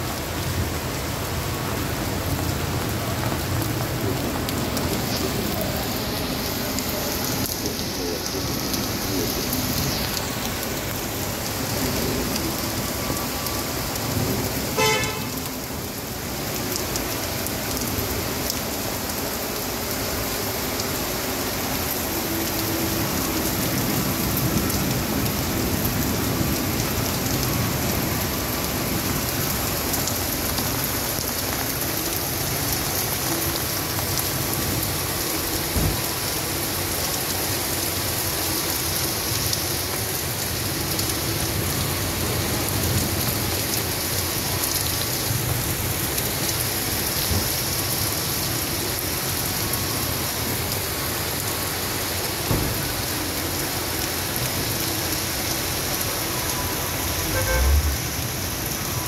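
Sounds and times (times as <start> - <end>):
heavy rain on pavement: 0.0 - 59.0
runoff water streaming: 0.0 - 59.0
car horn toot: 14.8 - 15.4, 57.3 - 58.0.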